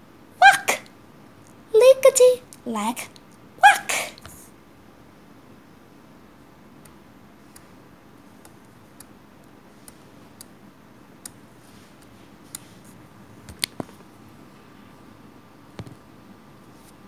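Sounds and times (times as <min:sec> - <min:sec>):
low steady hiss: 0:00.0 - 0:17.0
faint clicks and ticks: 0:06.7 - 0:12.9.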